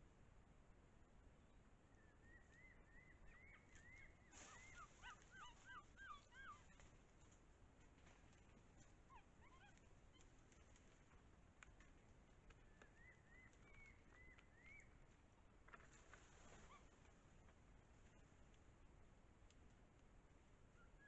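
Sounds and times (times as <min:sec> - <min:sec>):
whistled animal calls: 0:02.0 - 0:06.8, 0:12.7 - 0:14.9.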